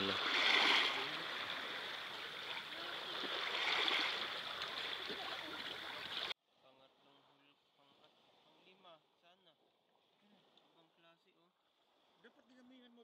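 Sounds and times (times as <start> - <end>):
seawater washing over pebbles: 0.0 - 6.3.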